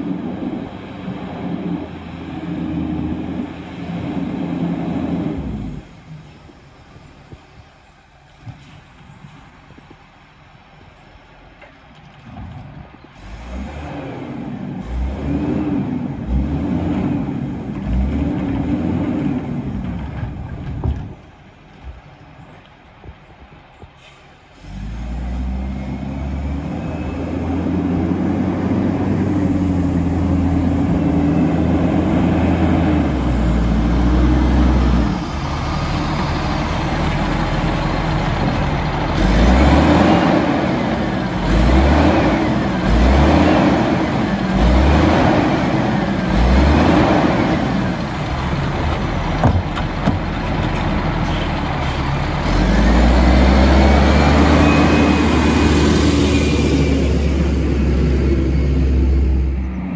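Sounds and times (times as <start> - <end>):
garbage truck diesel engine revving: 13.2 - 20.2, 24.6 - 59.9.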